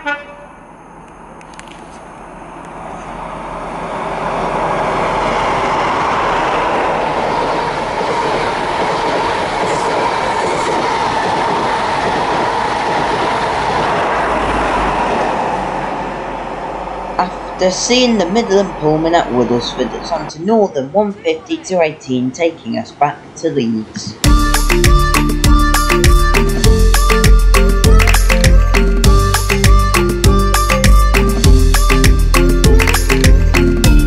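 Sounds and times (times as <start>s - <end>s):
train rushing past: 2.2s - 20.4s.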